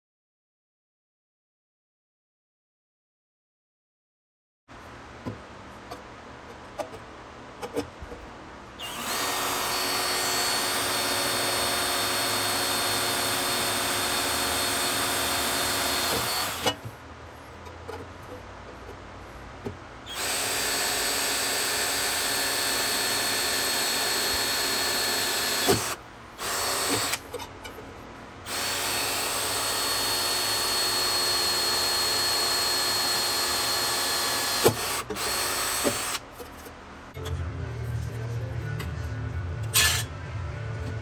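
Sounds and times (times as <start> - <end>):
power tool running in bursts: 8.8 - 16.7, 28.5 - 36.2.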